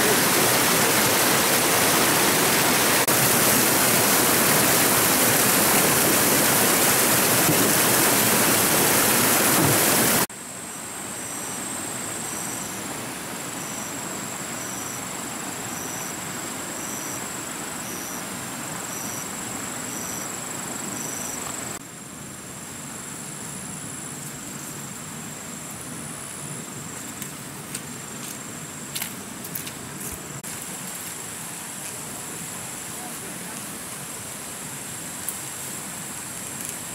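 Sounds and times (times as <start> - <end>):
insect whine: 10.3 - 36.9.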